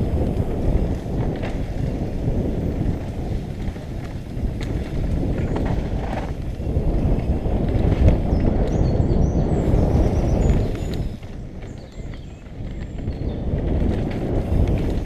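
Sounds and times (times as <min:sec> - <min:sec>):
tyres rumbling on dirt: 0:00.0 - 0:12.0
bike clicks and rattles: 0:00.0 - 0:15.0
wind buffeting microphone: 0:00.0 - 0:15.0.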